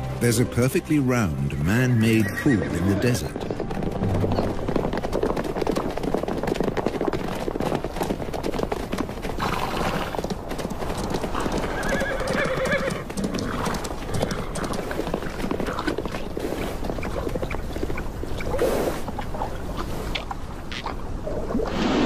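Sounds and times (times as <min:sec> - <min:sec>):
horse hooves galloping on stony ground: 0:01.1 - 0:21.0
horse whinnying: 0:02.0 - 0:03.4, 0:11.4 - 0:14.7.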